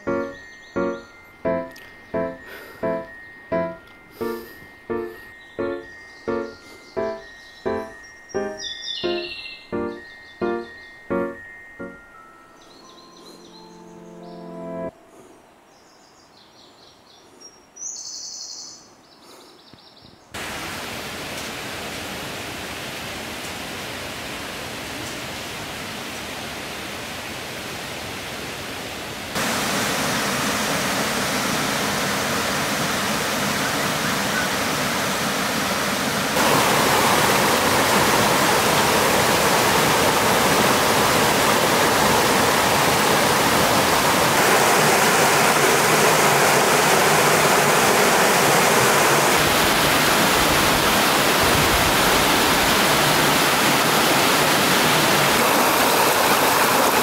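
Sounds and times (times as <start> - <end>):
waterfall rushing over rocks: 20.4 - 57.0.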